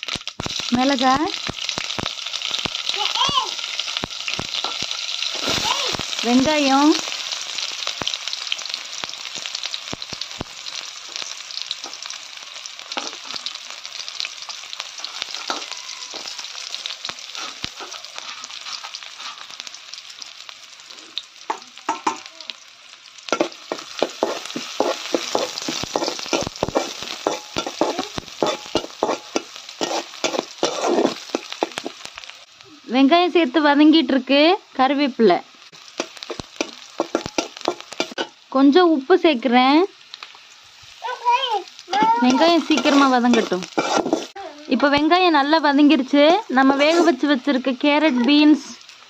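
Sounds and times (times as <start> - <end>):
onions sizzling in hot oil: 0.0 - 49.0
metal spatula scraping a pan: 14.9 - 16.5, 17.2 - 19.7, 23.3 - 31.9, 41.9 - 44.4, 46.7 - 47.3.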